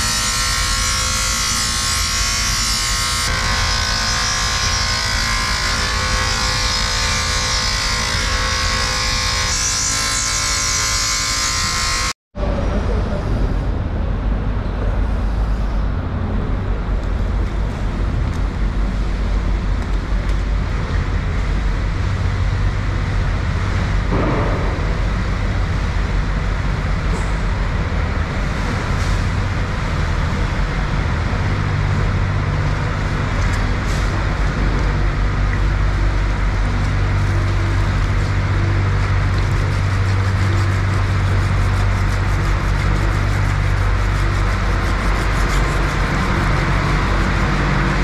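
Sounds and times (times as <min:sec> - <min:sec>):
low motor hum: 0:11.6 - 0:48.0
mechanical rumble: 0:11.7 - 0:48.0.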